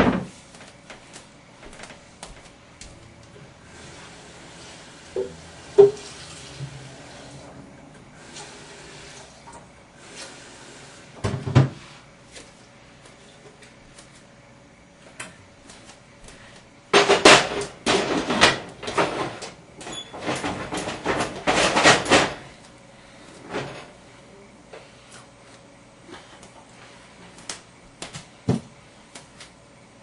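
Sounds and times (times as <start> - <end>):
cookware clanking: 5.2 - 6.1.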